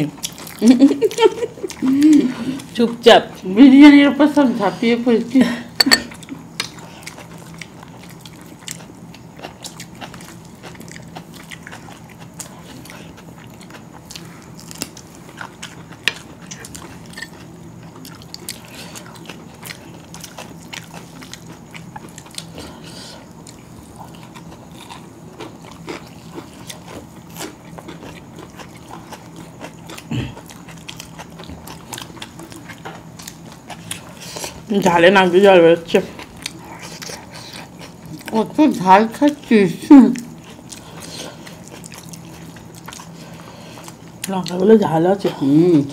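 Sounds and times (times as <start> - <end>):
chewing and biting: 0.0 - 2.8, 5.8 - 35.0, 35.8 - 39.5, 40.2 - 44.6
faint low hum: 0.0 - 45.9.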